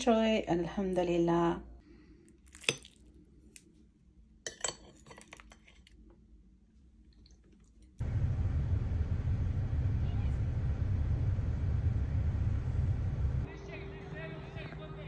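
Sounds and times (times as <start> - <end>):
car interior rumble: 8.0 - 13.5.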